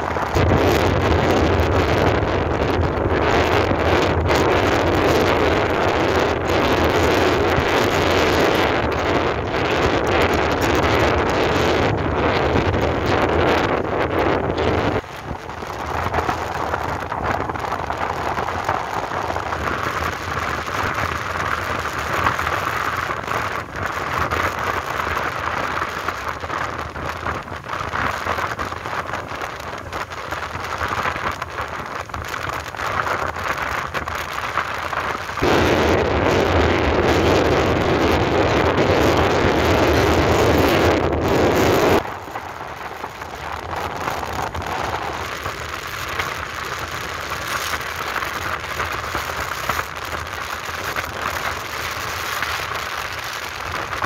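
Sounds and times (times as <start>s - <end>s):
road noise: 0.0s - 54.0s
wind rushing over microphone: 0.0s - 54.0s.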